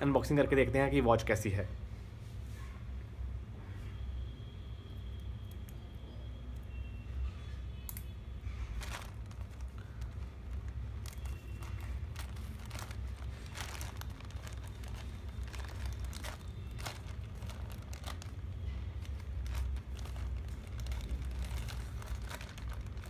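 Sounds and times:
plastic bag crinkling: 8.4s - 23.0s.

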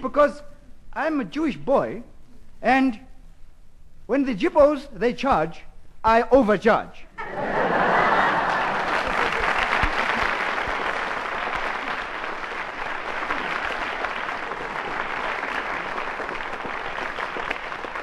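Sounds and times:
audience applauding: 7.3s - 18.0s.

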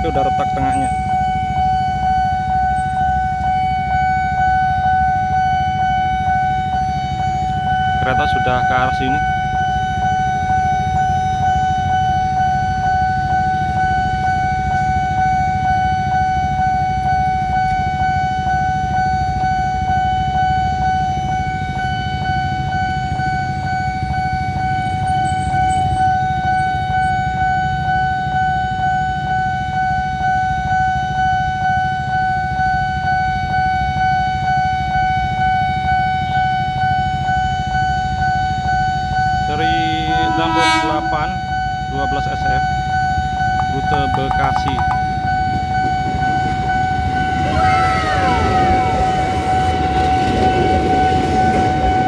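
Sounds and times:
level crossing alarm steady tone: 0.0s - 52.0s
motorbikes rumbling: 42.2s - 49.4s.

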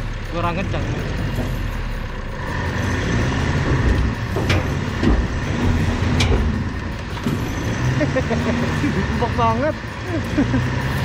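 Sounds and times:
vehicle engine running under load: 0.0s - 11.0s
sharp knocks: 3.3s - 7.5s.

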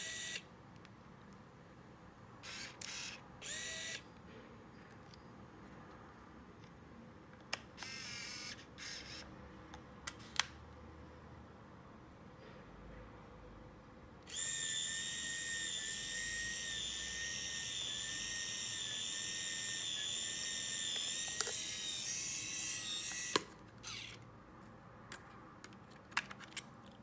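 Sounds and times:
camera motor whirring: 0.0s - 0.5s, 2.4s - 4.1s, 7.8s - 9.3s, 14.3s - 24.2s
small camera clicks: 2.4s - 4.1s, 7.5s - 9.3s, 14.3s - 24.2s.

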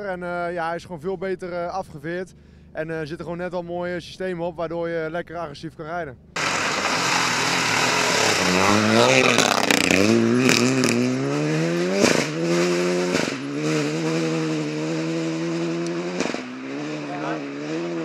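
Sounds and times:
gear change cracks: 6.4s - 11.0s
rally car engine accelerating: 6.4s - 18.0s.

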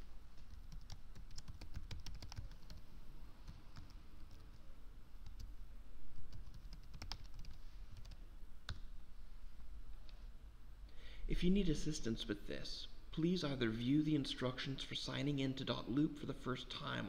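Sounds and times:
typing on computer keyboard: 0.5s - 2.8s, 6.3s - 8.2s.

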